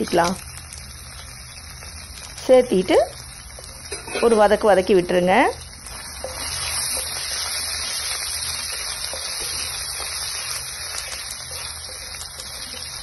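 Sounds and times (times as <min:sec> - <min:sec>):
spices sizzling in hot oil: 0:00.0 - 0:13.0
spatula scraping pan: 0:03.8 - 0:04.5, 0:05.9 - 0:13.0.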